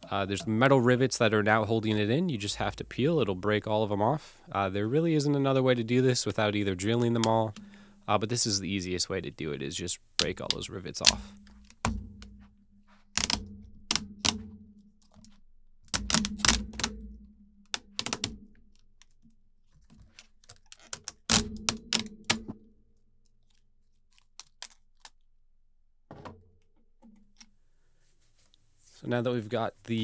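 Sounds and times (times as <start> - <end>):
rivets snapping with sharp clicks: 10.2 - 12.4, 13.2 - 14.5, 15.1 - 17.1, 17.7 - 18.5, 20.1 - 22.6, 24.1 - 25.2.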